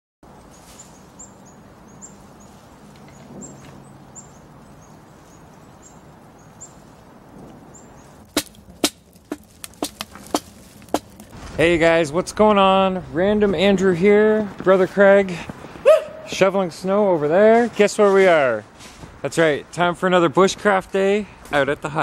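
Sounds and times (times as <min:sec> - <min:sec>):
small birds chirping: 0:00.3 - 0:07.1
sharp loud knocks: 0:08.3 - 0:11.3.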